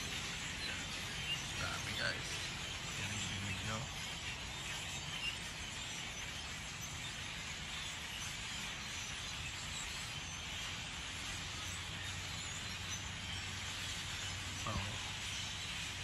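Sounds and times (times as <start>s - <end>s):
distant flock of birds chattering: 0.0s - 16.0s.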